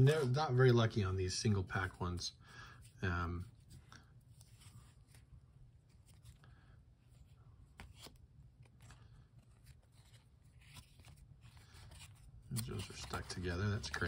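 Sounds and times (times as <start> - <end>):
cardboard cards rustling: 2.8 - 14.0.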